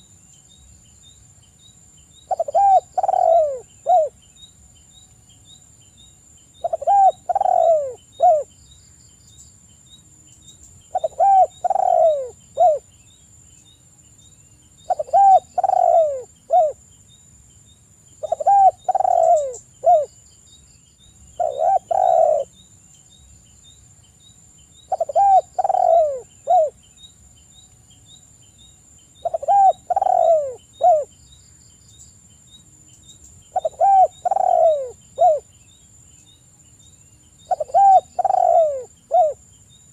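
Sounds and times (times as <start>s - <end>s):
dove cooing: 2.3s - 4.2s, 6.6s - 8.5s, 10.9s - 12.8s, 14.9s - 16.8s, 18.2s - 20.1s, 21.4s - 22.5s, 24.9s - 26.8s, 29.2s - 31.1s, 33.5s - 35.5s, 37.5s - 39.4s.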